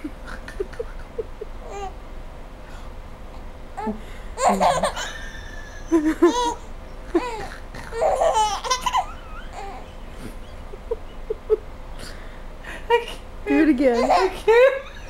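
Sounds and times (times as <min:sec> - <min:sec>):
baby laughing: 0:00.0 - 0:02.0, 0:04.4 - 0:11.6, 0:14.0 - 0:15.0.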